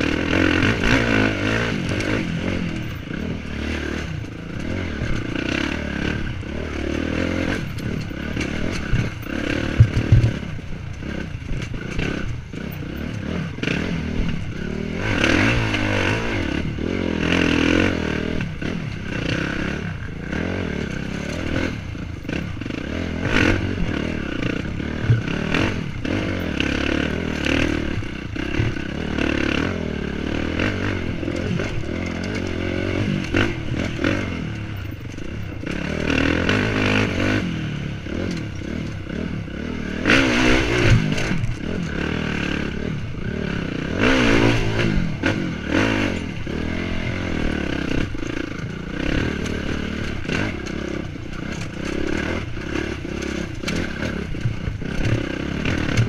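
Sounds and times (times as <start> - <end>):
dirt bike engine revving: 0.0 - 56.0
rocks clattering under wheels: 6.9 - 13.4
knocks against bike: 7.7 - 10.6.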